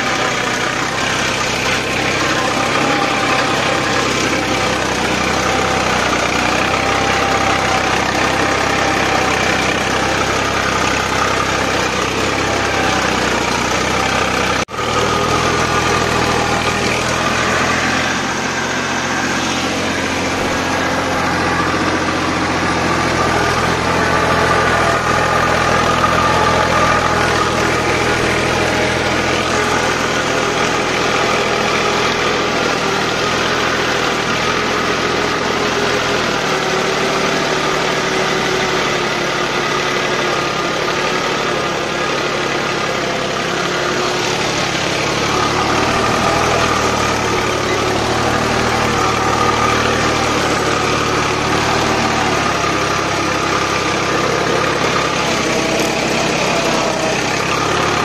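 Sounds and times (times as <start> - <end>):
tractor diesel engine under load: 0.0 - 58.0.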